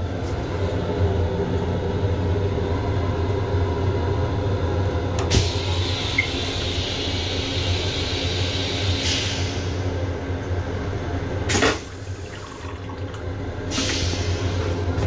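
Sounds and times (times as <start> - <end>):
low hum of railcar: 0.0 - 15.0
toilet flushing water rush: 11.4 - 15.0
toilet flush click: 11.5 - 14.8.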